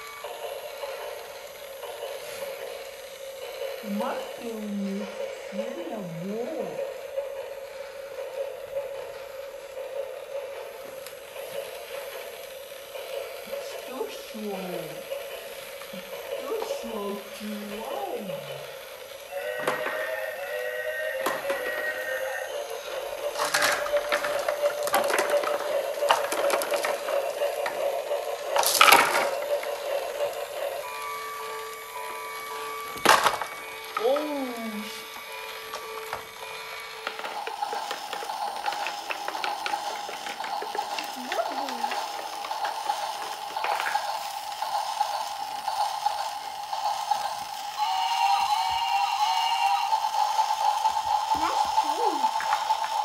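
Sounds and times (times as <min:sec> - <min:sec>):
toy train motor whining: 0:00.0 - 0:53.0.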